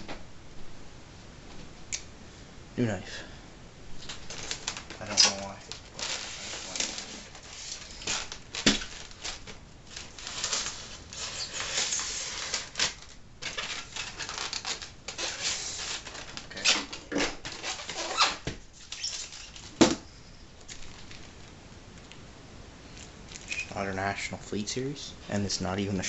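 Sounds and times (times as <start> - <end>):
styrofoam scraping and rustling: 4.0 - 20.0.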